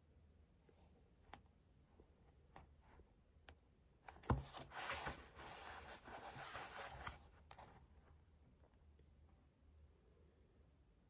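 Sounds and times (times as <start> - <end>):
rustling handling noise: 4.0 - 8.1.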